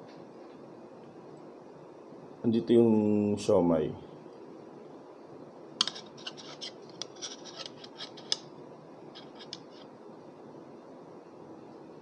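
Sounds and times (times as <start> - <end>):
chopsticks scraping ceramic plate: 5.8 - 8.4, 9.2 - 9.9.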